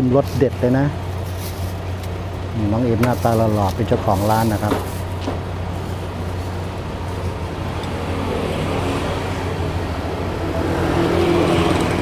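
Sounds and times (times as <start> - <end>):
engine running low hum: 0.0 - 12.0.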